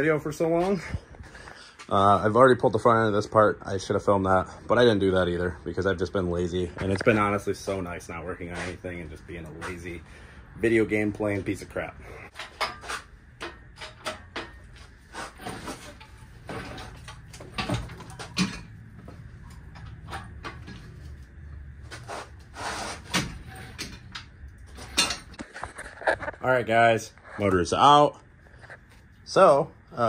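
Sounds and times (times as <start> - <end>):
low steady hum: 0.0 - 30.0
hand tools clanking and scraping: 6.7 - 26.4.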